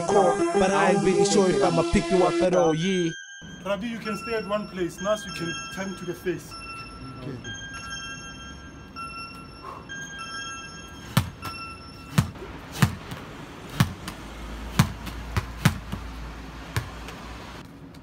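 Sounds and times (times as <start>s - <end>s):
ball smacking against wall: 12.1s - 16.0s.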